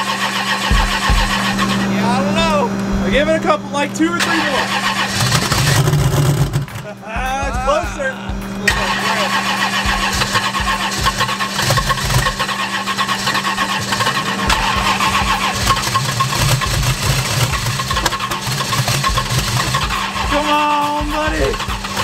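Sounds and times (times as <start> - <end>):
starter cranking car engine: 0.0 - 6.9, 8.7 - 22.0.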